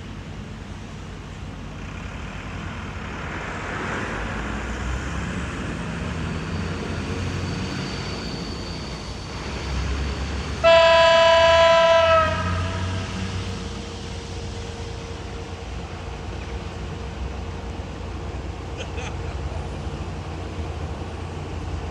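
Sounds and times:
diesel locomotive engine running: 0.0s - 21.9s
locomotive horn blast: 10.6s - 13.0s.

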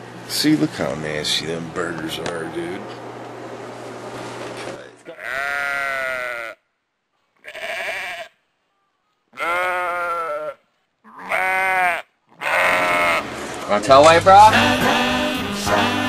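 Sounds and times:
room hum: 0.0s - 7.4s, 12.4s - 16.0s
sheep bleating: 5.0s - 6.6s, 7.4s - 8.4s, 9.3s - 13.4s, 14.4s - 16.0s.

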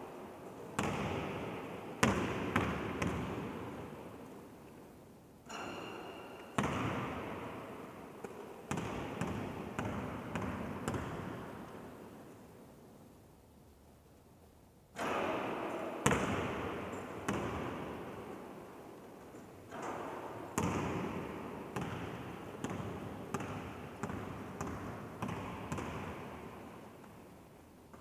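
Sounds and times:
basketball bouncing on hall floor: 0.6s - 4.4s, 5.5s - 12.1s, 15.0s - 18.4s, 19.7s - 27.3s.

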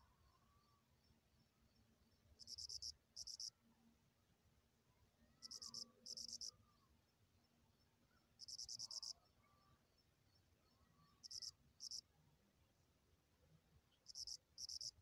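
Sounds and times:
cricket chirping: 0.0s - 3.6s, 5.3s - 12.1s, 13.9s - 15.0s.

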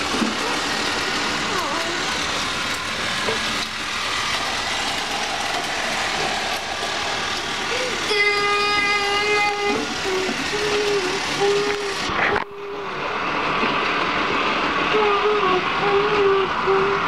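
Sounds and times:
toy train whirring and rattling: 0.0s - 17.0s.

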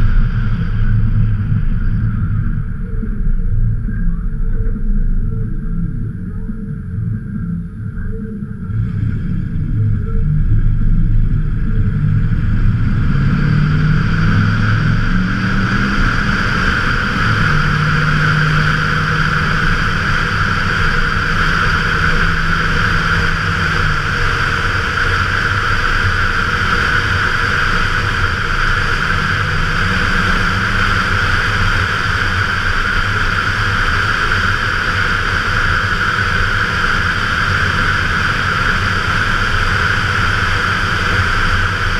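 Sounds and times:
truck engine exhaust: 0.0s - 41.9s
wind noise: 0.0s - 41.9s.

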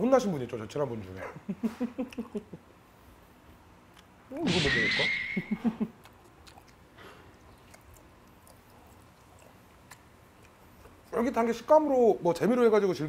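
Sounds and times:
man chewing food: 3.3s - 4.2s, 5.6s - 11.2s.

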